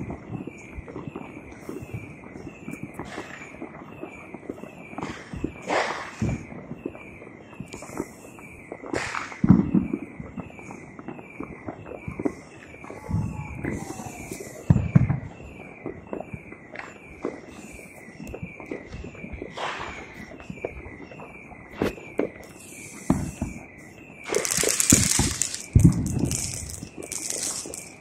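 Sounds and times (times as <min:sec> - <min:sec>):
distant fireworks booms and bangs: 0:00.0 - 0:28.0
fireworks crackling: 0:17.1 - 0:28.0.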